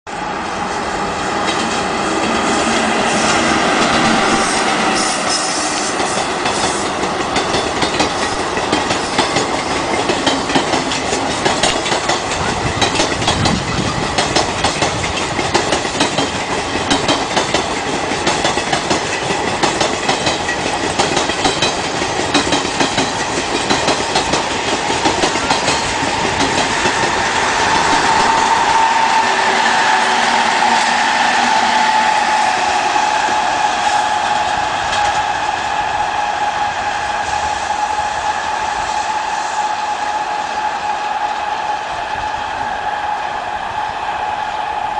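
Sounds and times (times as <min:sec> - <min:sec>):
locomotive hum: 0:00.1 - 0:44.9
train wheels clicking on rail joints: 0:01.4 - 0:41.8.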